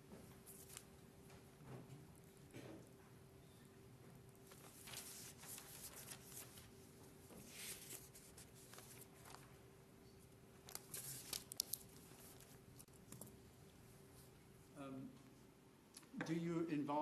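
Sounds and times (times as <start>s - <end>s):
faint room hum: 0.0s - 17.0s
paper rustling: 0.4s - 0.9s, 4.4s - 9.6s, 10.6s - 13.3s.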